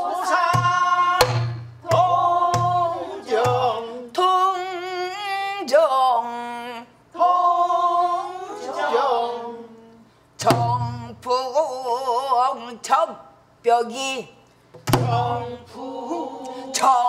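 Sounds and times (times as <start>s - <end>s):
woman singing with sliding pitch: 0.0s - 5.2s
barrel drum strikes: 0.5s - 3.8s, 10.4s - 11.0s, 14.8s - 15.4s.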